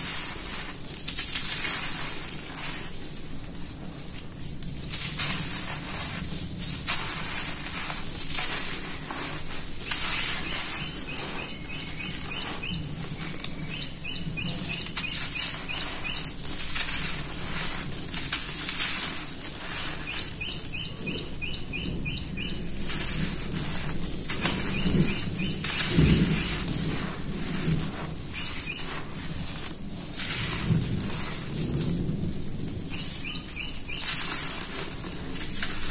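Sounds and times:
crumbling cement chunks crunching: 0.0 - 35.9
grit falling onto floor: 0.0 - 35.9
bird chirping: 8.4 - 17.7, 18.4 - 29.0, 32.9 - 34.5.

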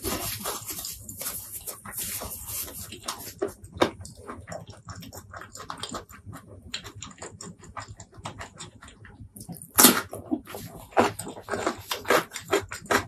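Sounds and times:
person chewing food: 0.0 - 13.0.

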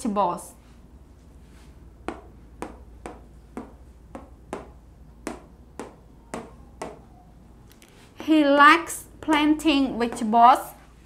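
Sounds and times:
marker tapping on a whiteboard: 2.0 - 7.1, 9.2 - 10.4.

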